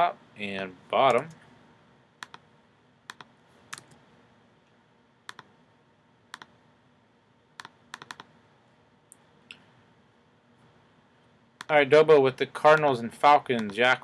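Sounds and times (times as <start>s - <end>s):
mouse and keyboard clicks: 2.2s - 2.4s, 3.1s - 4.0s, 5.3s - 5.5s, 6.3s - 6.5s, 7.6s - 8.3s, 13.5s - 13.8s.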